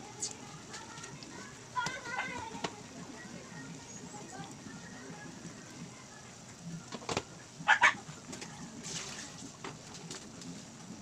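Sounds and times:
low background noise: 0.0 - 11.0
dog barking: 7.6 - 8.0.

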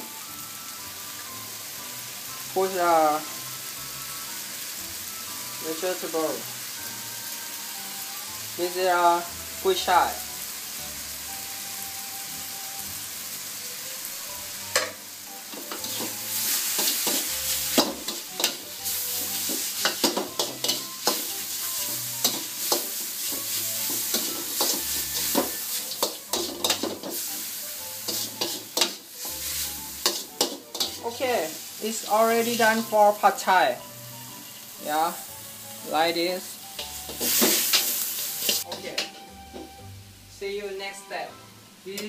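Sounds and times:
noodles sizzling in a wok: 0.0 - 42.0
metal spatula scraping a wok: 14.7 - 33.4, 36.5 - 39.3.

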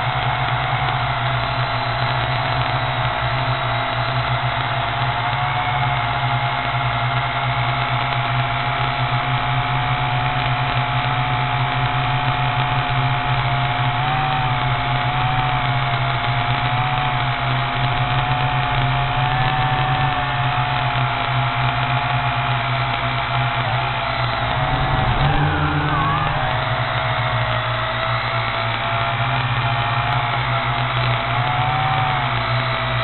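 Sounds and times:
model aircraft motor whine: 0.0 - 33.0.

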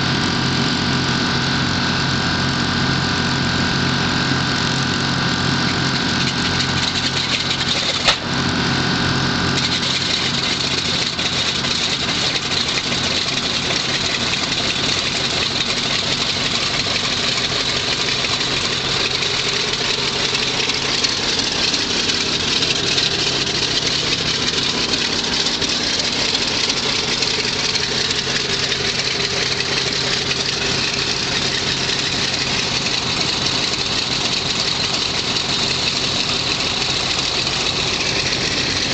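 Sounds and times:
radial engine idling: 0.0 - 38.9
engine pop: 4.6 - 8.6.

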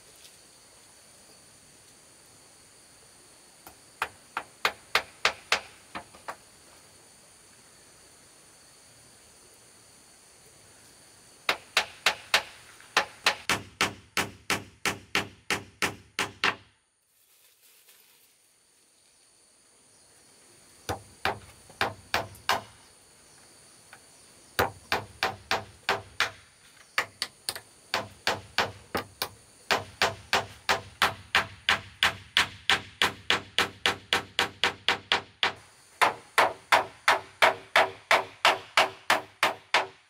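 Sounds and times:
hammer strikes: 11.5 - 16.6, 27.9 - 40.0.

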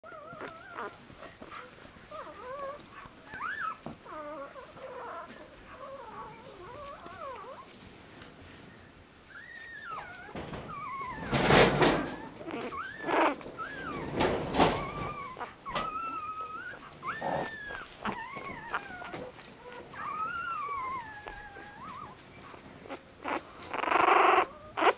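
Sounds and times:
puppies squeaking and whimpering: 0.0 - 7.7, 9.2 - 24.9
knocks as puppies move: 9.8 - 22.6.

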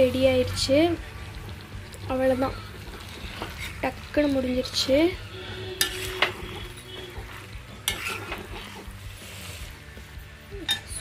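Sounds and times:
frying hiss: 0.0 - 11.0
metal ladle scraping pan: 2.4 - 9.8, 10.6 - 11.0.

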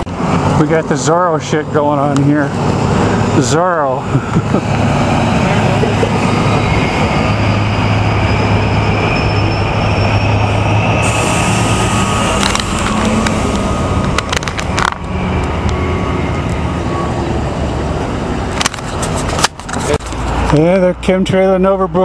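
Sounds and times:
heavy traffic rumble: 0.0 - 22.0
faint high whine: 3.4 - 17.4.

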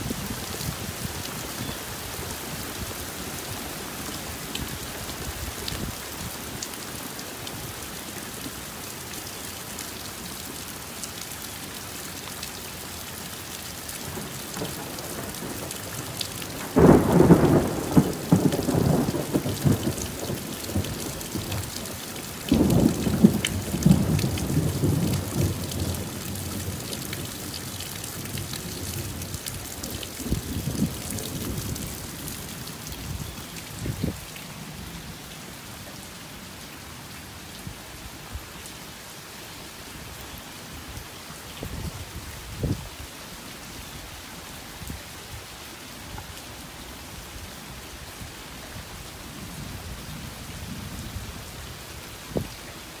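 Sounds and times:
steady rain: 0.0 - 53.0
thunder rumbling: 16.6 - 21.7.

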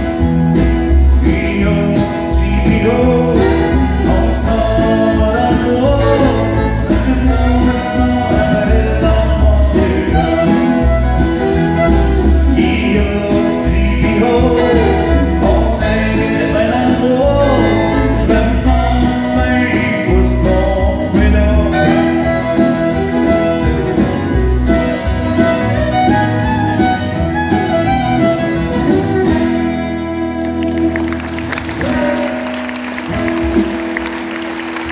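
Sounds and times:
acoustic guitars: 0.0 - 34.9
fiddle: 0.0 - 34.9
man singing: 0.9 - 24.1, 31.6 - 32.8
audience applause: 30.3 - 34.9.

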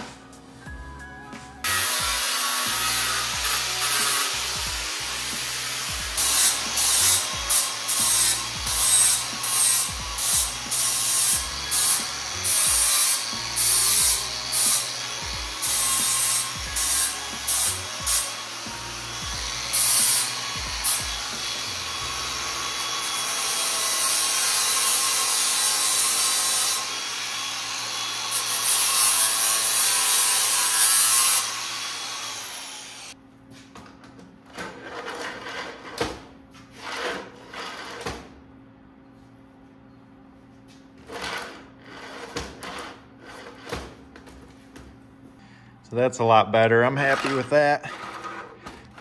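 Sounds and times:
angle grinder cutting steel: 1.6 - 33.2, 46.2 - 48.6.

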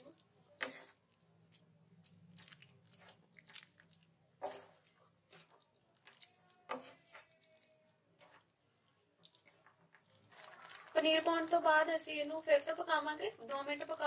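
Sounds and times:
spatula stirring thick gravy: 0.0 - 1.8, 2.7 - 12.9.

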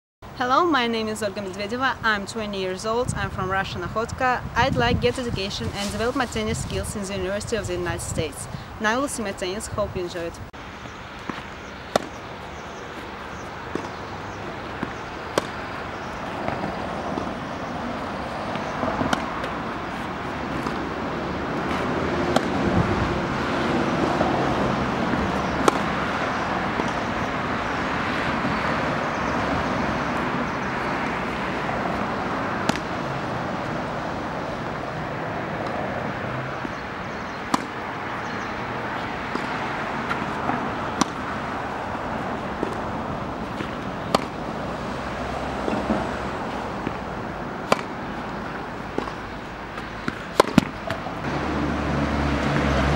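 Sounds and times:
outdoor background rush: 0.2 - 52.9
tennis racket striking ball: 11.2 - 12.3, 13.0 - 14.0, 14.6 - 28.6, 29.6 - 33.0, 37.4 - 38.4, 39.3 - 41.4, 42.6 - 44.5, 46.8 - 51.3.

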